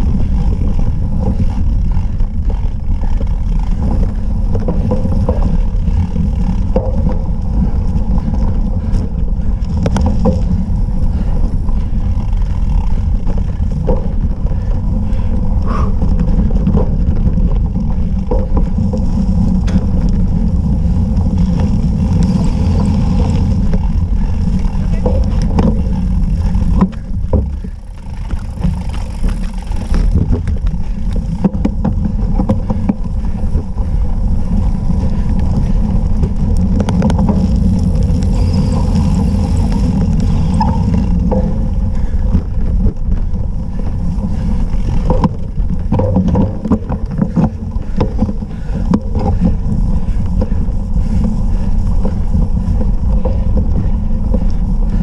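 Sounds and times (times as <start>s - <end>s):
bike clicks and rattles: 0.0s - 55.0s
wind rumble on microphone: 0.0s - 55.0s.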